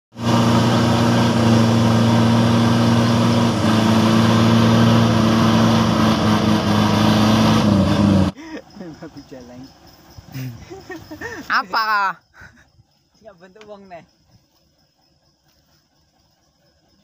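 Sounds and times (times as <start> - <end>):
diesel truck engine running hard: 0.1 - 8.4.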